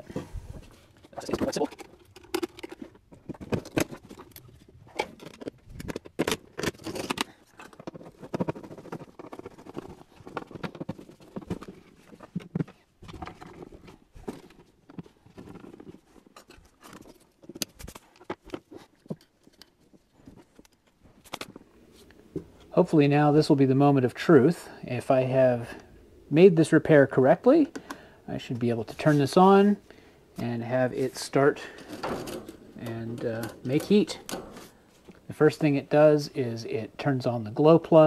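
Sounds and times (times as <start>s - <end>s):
scraping and rustling: 0.0s - 22.7s, 28.4s - 36.1s.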